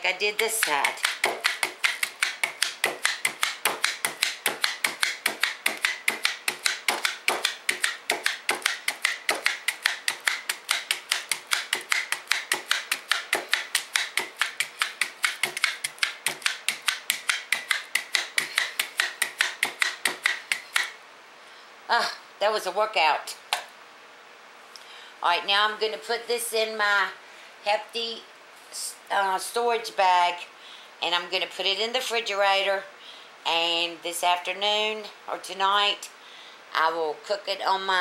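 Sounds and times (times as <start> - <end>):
meat tenderizer clicking: 0.4 - 20.9.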